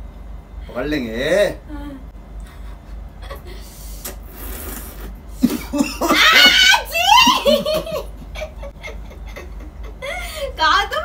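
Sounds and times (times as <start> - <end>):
high-pitched laughter: 5.6 - 10.4.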